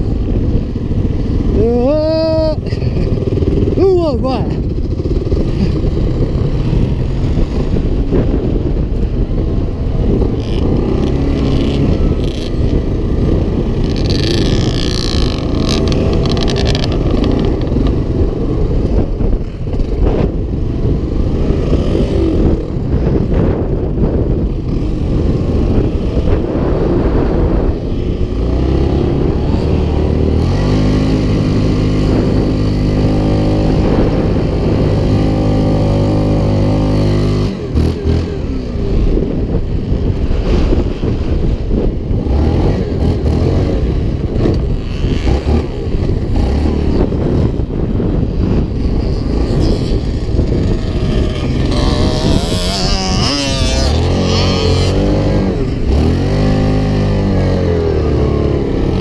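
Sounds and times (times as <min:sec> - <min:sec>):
off-road vehicle engine revving: 0:10.1 - 0:39.6, 0:42.1 - 0:59.0.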